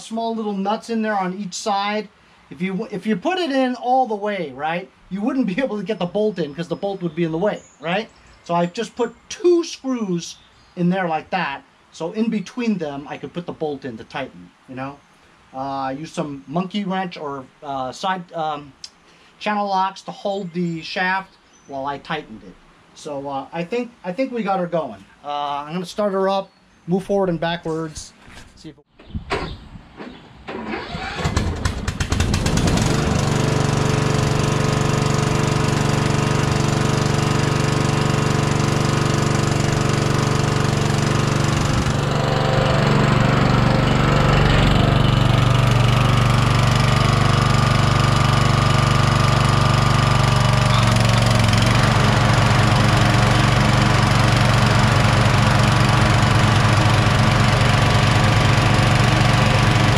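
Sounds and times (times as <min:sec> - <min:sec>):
engine starter cranking: 0:29.3 - 0:59.9
lawn tractor engine running: 0:30.5 - 0:59.9.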